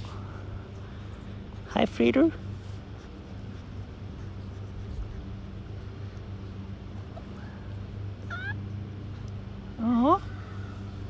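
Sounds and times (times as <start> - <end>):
low mechanical hum: 0.0 - 11.0
puppy whining: 7.0 - 8.8.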